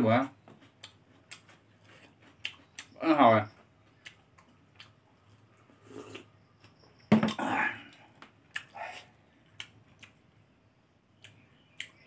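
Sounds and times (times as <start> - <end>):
mouth clicks and smacks eating: 0.5 - 5.5, 7.8 - 10.2, 11.2 - 12.0.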